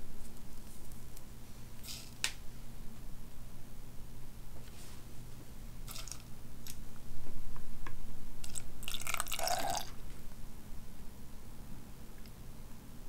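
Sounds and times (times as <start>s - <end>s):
low steady hum: 0.0s - 13.0s
liquid pouring into blender cup: 8.5s - 9.9s.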